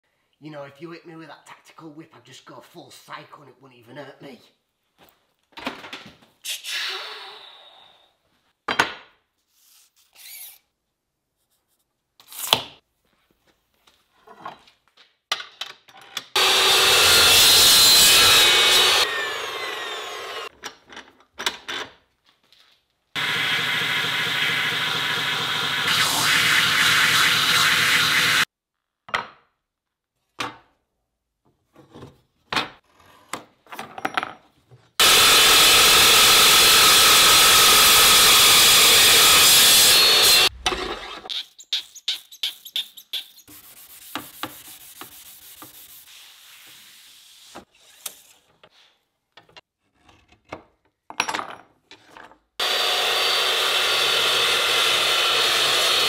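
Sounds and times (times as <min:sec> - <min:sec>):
chop saw cutting steel: 0:16.4 - 0:20.5, 0:23.2 - 0:28.5, 0:35.0 - 0:43.2, 0:52.6 - 0:56.0.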